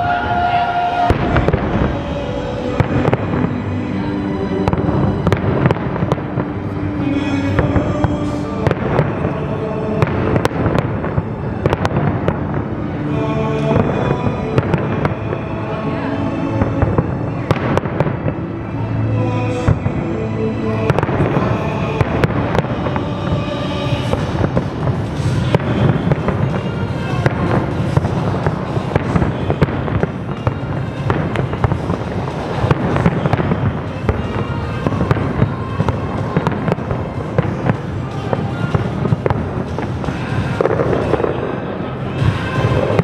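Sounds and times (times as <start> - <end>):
fireworks exploding: 0.0 - 18.8, 19.5 - 43.0
music playing: 0.0 - 43.0.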